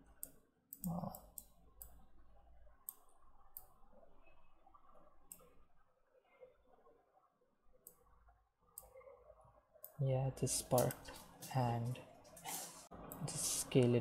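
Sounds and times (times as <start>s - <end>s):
computer mouse clicks: 2.8s - 3.7s.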